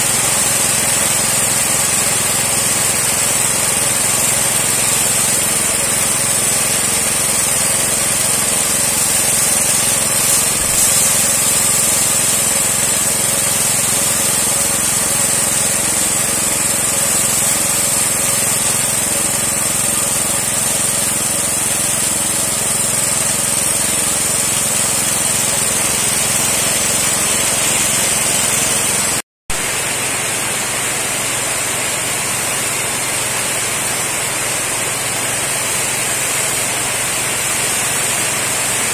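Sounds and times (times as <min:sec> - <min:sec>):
water spray hissing: 0:00.0 - 0:30.9
small petrol engine running: 0:00.0 - 0:38.9.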